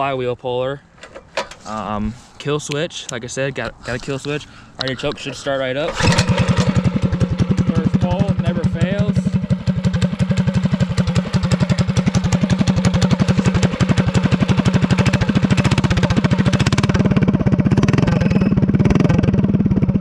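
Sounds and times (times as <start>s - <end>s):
mini bike engine idling: 5.9s - 20.0s.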